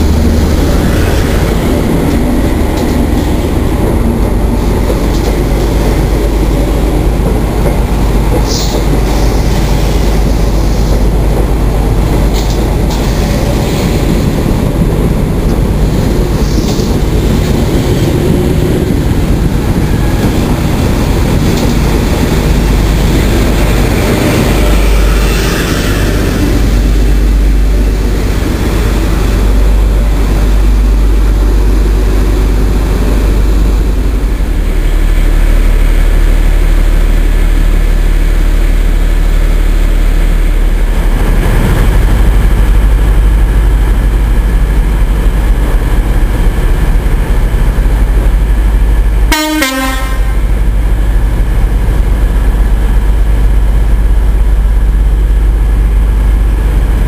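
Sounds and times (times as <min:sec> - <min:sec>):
train horn: 0:49.3 - 0:50.5.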